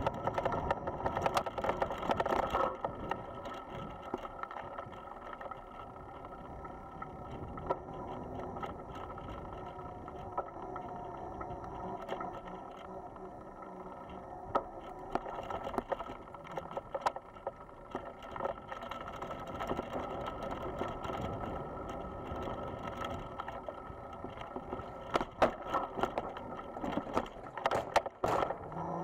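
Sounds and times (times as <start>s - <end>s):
bicycle rattling on dirt trail: 0.0s - 29.0s
wheels on wooden footbridge: 0.0s - 29.0s.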